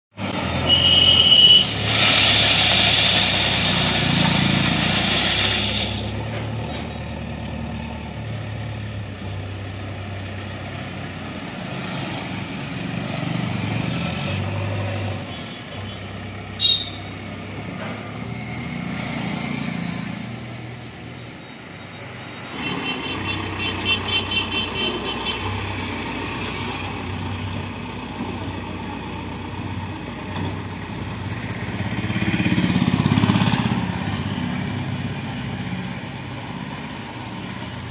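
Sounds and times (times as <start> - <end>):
road traffic: 0.1 - 37.9
diesel engine running: 0.2 - 10.6
vehicle passing loudly: 31.4 - 35.9.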